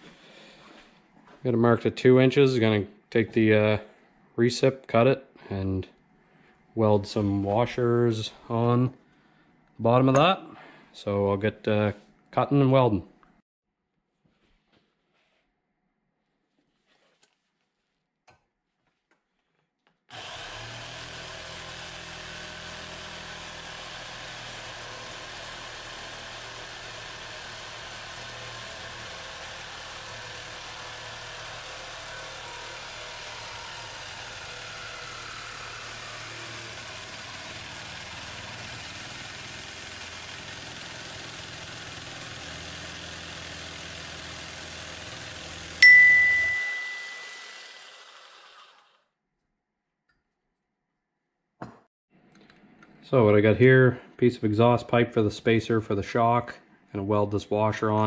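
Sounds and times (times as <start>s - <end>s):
reciprocating saw cutting metal pipe: 20.1s - 49.1s.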